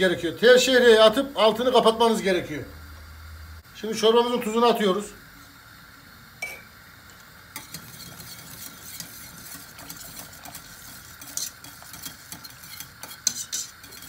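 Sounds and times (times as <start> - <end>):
whisk scraping pot: 7.5 - 14.0.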